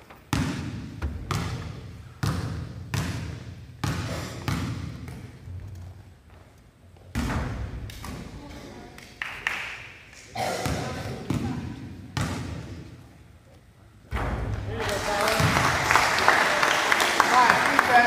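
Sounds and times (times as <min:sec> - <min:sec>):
basketball bouncing on gym floor: 0:00.3 - 0:06.0, 0:07.0 - 0:08.4, 0:10.6 - 0:12.9.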